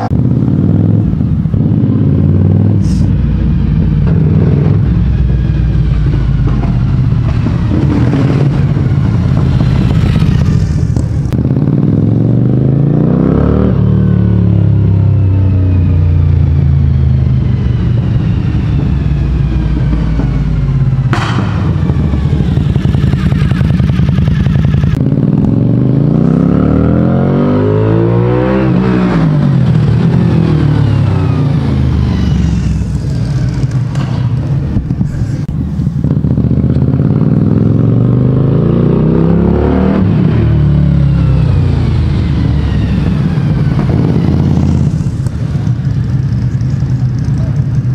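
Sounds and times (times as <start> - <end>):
motorcycle engine revving past: 3.9 - 16.4, 17.1 - 34.7, 36.0 - 47.7
sharp crack: 21.0 - 25.6.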